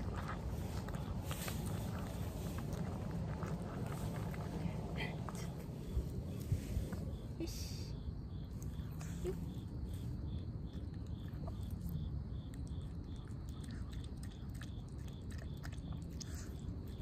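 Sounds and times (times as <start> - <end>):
dog crunchy chewing: 0.0 - 6.4, 10.0 - 17.0.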